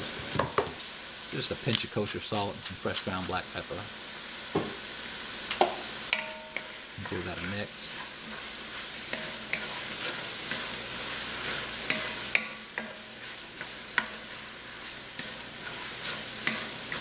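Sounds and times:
vegetables sizzling in oil: 0.0s - 17.0s
wooden spoon scraping a pot: 6.6s - 17.0s.

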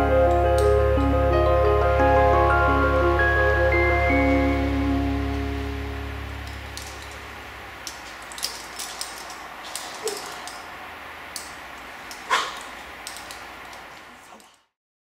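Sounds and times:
music: 0.0s - 7.5s
light clicks: 11.3s - 14.6s.

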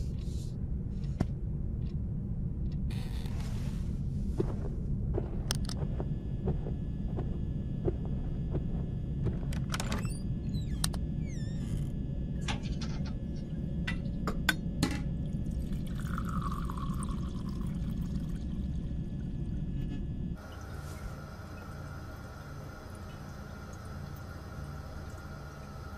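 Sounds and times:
low rumble: 0.0s - 20.4s.

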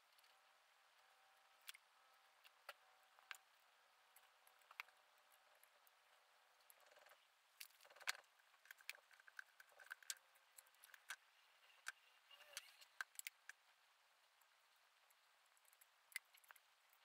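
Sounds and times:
faint small clicks: 1.6s - 6.0s.

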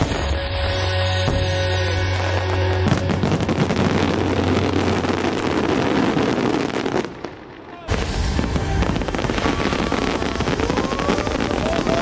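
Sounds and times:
music with low tones: 0.0s - 5.1s
fireworks crackling: 0.0s - 12.0s.

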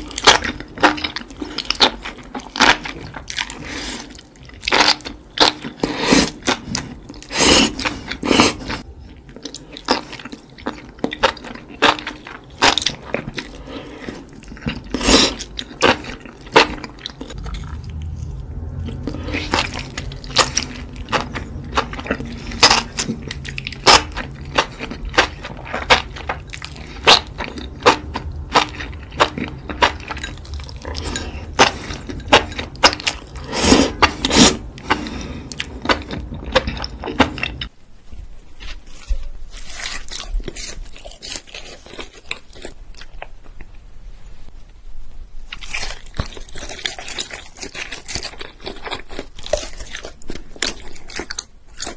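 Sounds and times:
slurping and chewing: 0.0s - 37.7s, 45.5s - 51.9s.

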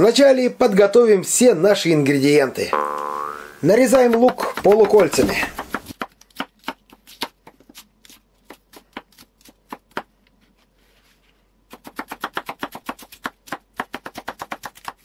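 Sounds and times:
knife slicing onion on board: 3.9s - 10.1s, 11.7s - 15.0s.

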